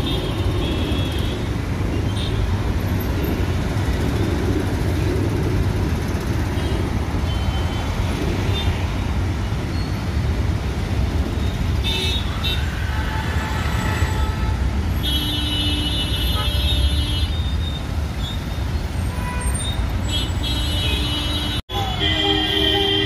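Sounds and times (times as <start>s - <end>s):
traffic rumble: 0.0s - 23.0s
long horn blast: 20.5s - 23.0s.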